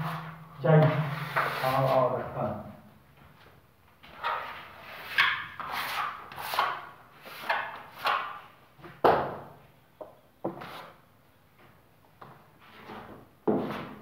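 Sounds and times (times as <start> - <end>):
tool scraping plaster: 0.0 - 2.0, 4.2 - 8.4.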